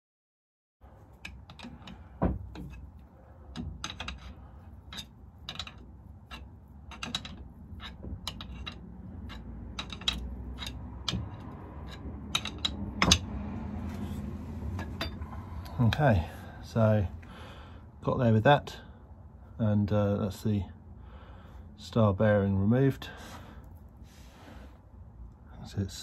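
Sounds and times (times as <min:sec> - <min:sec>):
low steady hum: 0:00.8 - 0:26.0
sharp knocks: 0:01.5 - 0:02.8
metallic clicks and clinks: 0:03.5 - 0:13.3.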